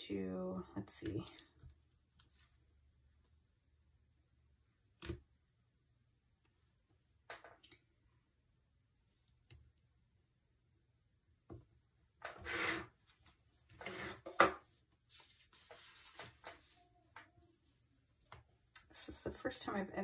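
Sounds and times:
sharp scrape on paper: 12.4s - 13.0s, 13.8s - 14.3s.

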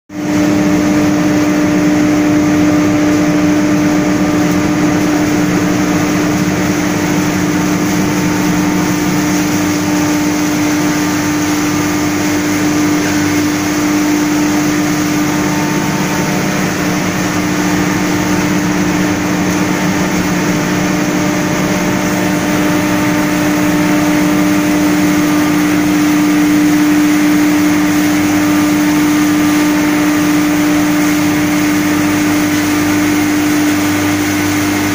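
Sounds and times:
straw grinding machine humming: 0.1s - 34.9s.

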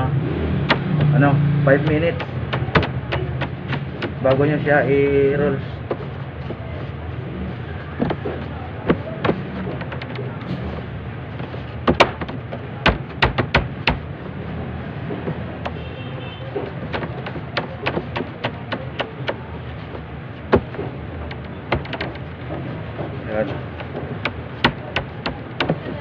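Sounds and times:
taps and knocks on steel table: 1.8s - 4.4s, 11.8s - 14.0s, 16.6s - 19.4s, 20.5s - 22.2s, 23.8s - 26.0s.

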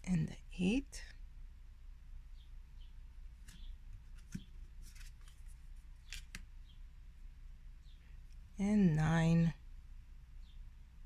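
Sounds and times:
cards sliding and flicking: 3.4s - 6.5s.

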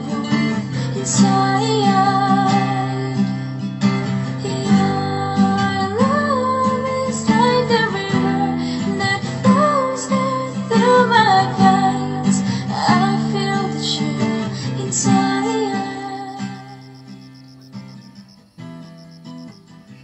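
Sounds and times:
woman singing: 0.0s - 3.4s, 4.3s - 16.8s
strummed acoustic guitar: 0.0s - 20.0s.

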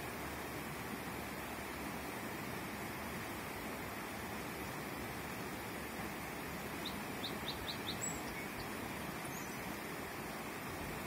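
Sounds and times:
river water rushing: 0.0s - 11.0s
songbird chirping: 6.7s - 11.0s.

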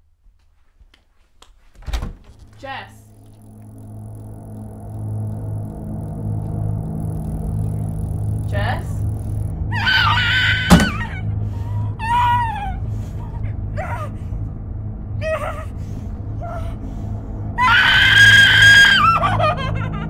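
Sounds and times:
low hum: 1.8s - 20.0s
woman screaming: 9.7s - 11.3s, 12.0s - 12.8s, 17.6s - 20.0s.

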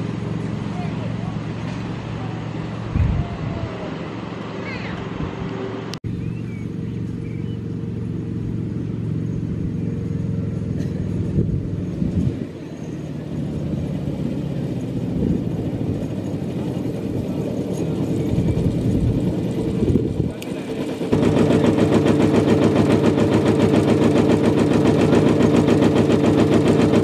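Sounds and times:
miniature locomotive engine running: 8.1s - 27.0s.

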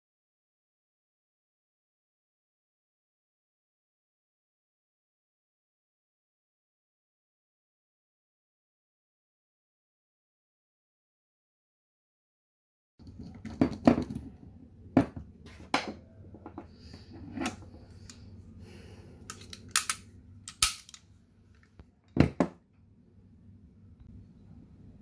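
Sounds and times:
pistol parts clicking and knocking: 19.3s - 21.1s.

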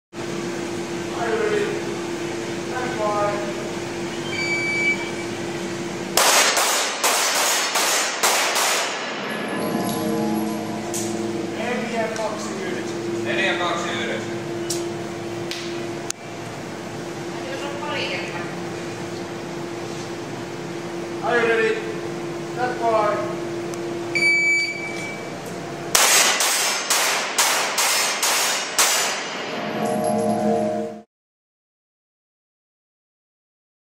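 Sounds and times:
shot timer beep: 4.2s - 5.2s, 24.1s - 25.2s
pistol shots ringing indoors: 6.2s - 9.3s, 25.9s - 29.5s.

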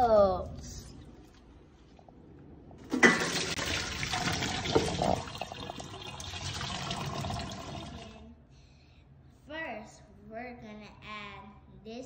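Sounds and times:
water splashing into metal sink: 2.8s - 8.2s.

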